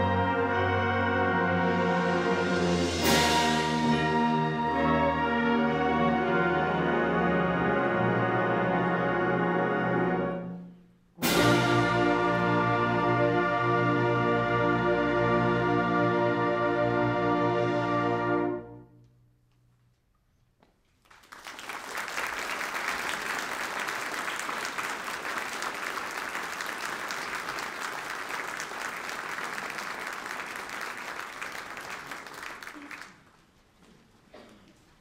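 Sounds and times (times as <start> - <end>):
audience applauding: 20.9 - 33.4.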